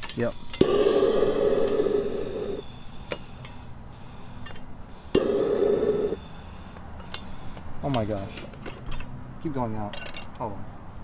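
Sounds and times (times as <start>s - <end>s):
butane torch burning: 0.1s - 2.7s, 5.1s - 6.2s.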